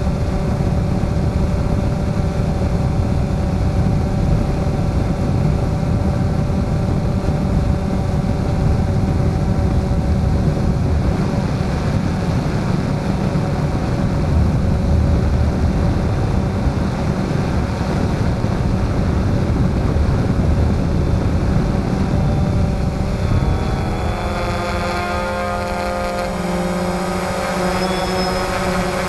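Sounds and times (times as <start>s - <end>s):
drone propellers buzzing: 0.0s - 29.0s.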